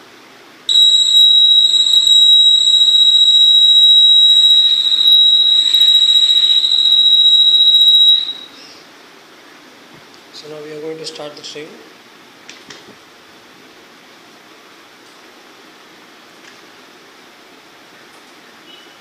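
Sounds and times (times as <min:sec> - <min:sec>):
high-pitched electronic buzzer beep: 0:00.7 - 0:08.5.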